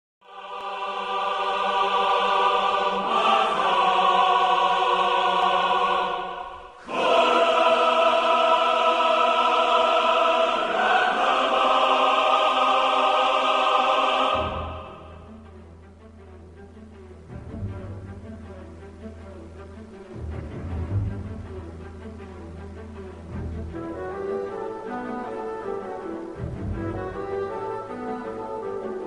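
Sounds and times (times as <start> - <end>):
choir singing held chords: 0.2 - 15.7.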